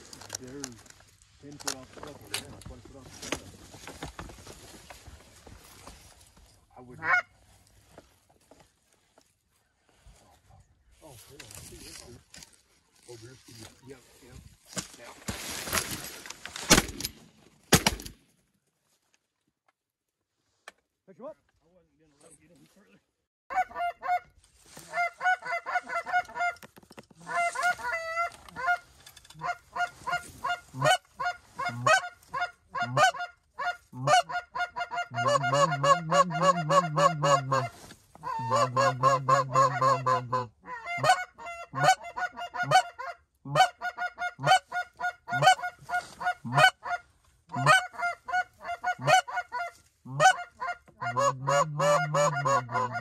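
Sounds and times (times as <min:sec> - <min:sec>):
goose honking: 0:23.5 - 0:26.6, 0:27.2 - 0:53.0.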